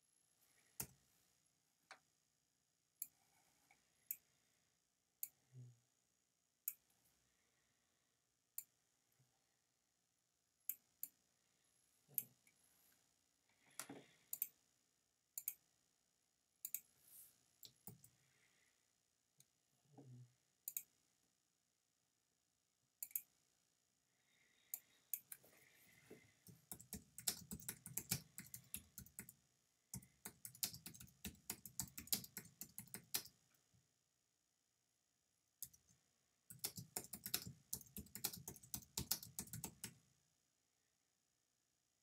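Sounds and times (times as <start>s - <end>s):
typing on computer keyboard: 26.4s - 33.4s, 36.5s - 40.0s.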